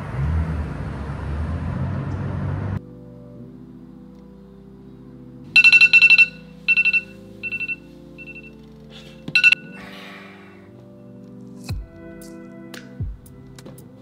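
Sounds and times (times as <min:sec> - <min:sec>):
soft background music: 0:02.8 - 0:14.0
phone alarm beeping: 0:05.6 - 0:08.7, 0:09.4 - 0:09.8.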